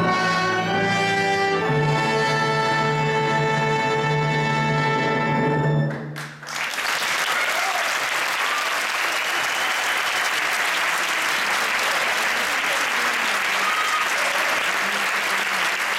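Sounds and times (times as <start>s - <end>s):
audience applause: 5.9s - 15.9s.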